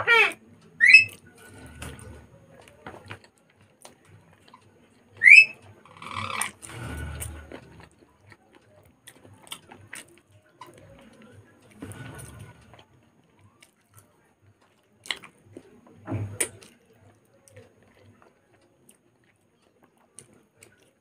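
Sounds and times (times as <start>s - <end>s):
rising whistle-like chirps: 0.8s - 1.2s, 5.2s - 5.6s
chewing: 1.1s - 21.0s.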